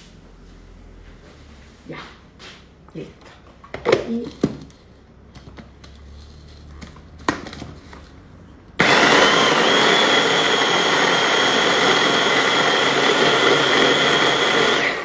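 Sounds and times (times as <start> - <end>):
hand blender motor whining: 8.8 - 15.0.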